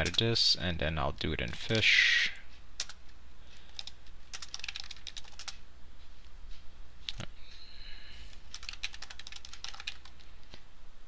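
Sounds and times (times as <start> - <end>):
typing on computer keyboard: 2.8 - 3.0, 3.6 - 5.6, 8.4 - 10.3.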